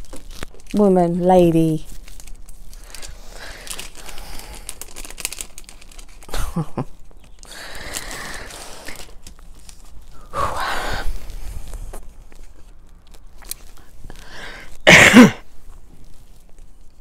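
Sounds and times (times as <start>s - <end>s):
woman clearing her throat: 14.9s - 15.4s.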